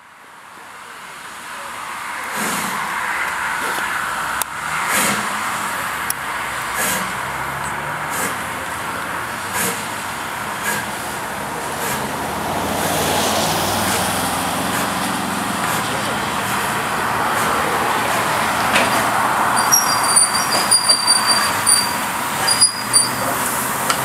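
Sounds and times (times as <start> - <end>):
steam hissing: 1.1 - 24.0
wheels and brakes squealing: 12.8 - 24.0.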